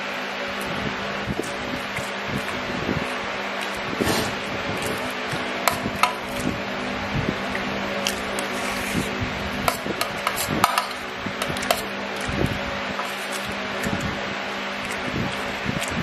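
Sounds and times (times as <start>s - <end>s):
fan hum: 0.0s - 16.0s
metal spoon scraping metal plate: 8.3s - 11.9s, 13.0s - 13.5s.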